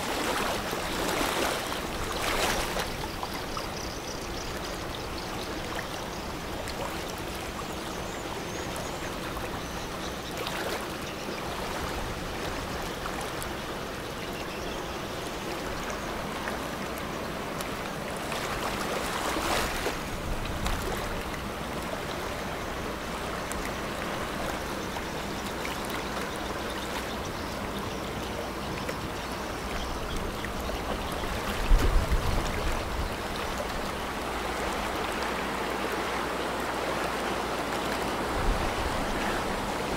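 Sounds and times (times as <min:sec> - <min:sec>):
river water rushing and lapping: 0:00.0 - 0:39.9.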